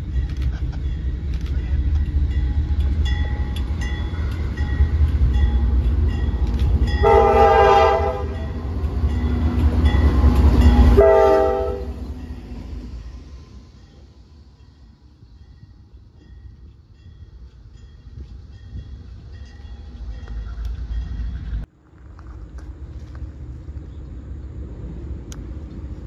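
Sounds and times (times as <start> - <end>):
diesel locomotive engine rumbling: 0.0 - 26.0
locomotive horn blasts: 6.9 - 8.7, 10.8 - 12.0.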